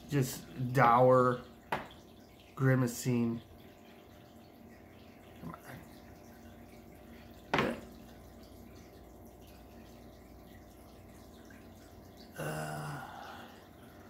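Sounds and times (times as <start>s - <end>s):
faint background hum: 0.0s - 14.0s
person humming: 12.4s - 13.5s.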